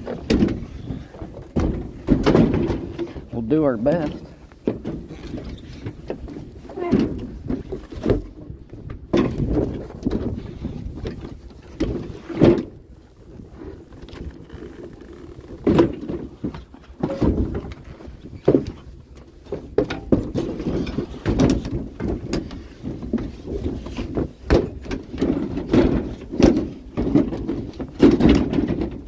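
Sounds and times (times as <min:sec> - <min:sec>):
wooden structure bumping and scraping: 0:00.0 - 0:29.0.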